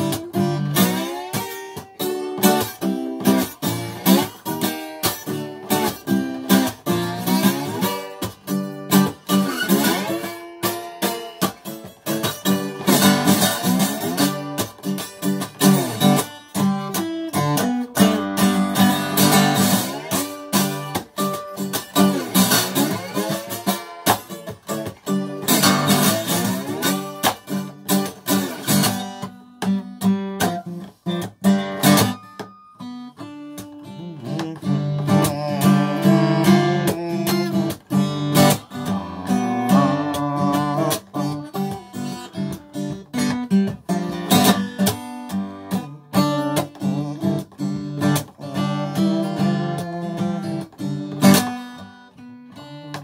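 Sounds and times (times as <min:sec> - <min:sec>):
acoustic guitar strumming: 0:00.0 - 0:53.0.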